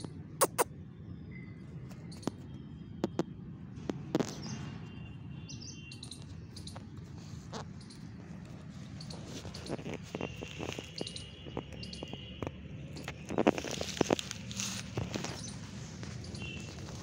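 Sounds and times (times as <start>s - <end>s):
sharp clicks: 0.0s - 0.6s
birds chirping: 0.0s - 3.3s, 4.2s - 17.0s.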